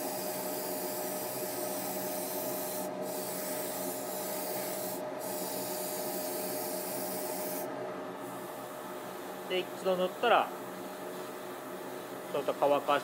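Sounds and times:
airbrush hissing: 0:00.0 - 0:07.7
steady hum: 0:00.0 - 0:13.0.

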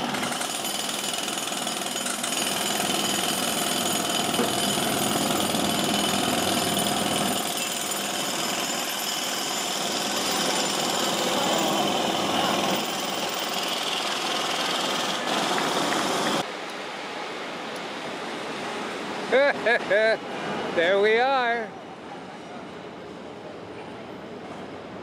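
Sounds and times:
jackhammer hammering: 0:00.0 - 0:16.4
busy city street noise: 0:01.0 - 0:25.0.

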